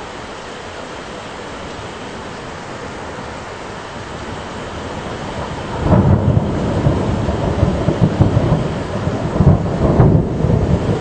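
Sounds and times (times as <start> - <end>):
steady rain: 0.0 - 11.0
thunder rumbling: 2.6 - 11.0.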